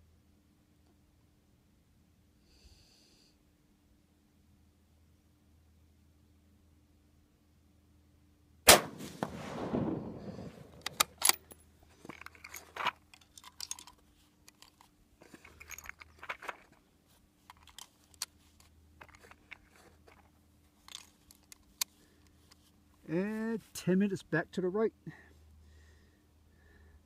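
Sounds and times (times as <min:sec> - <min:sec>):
rifle shot: 0:08.7 - 0:11.3
rifle bolt metallic clicks: 0:10.0 - 0:11.6.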